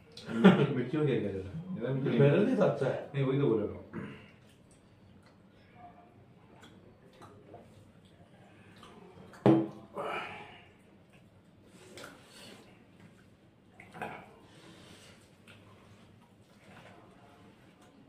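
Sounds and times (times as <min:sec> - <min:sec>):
breathy vocal sounds: 0:09.9 - 0:10.8.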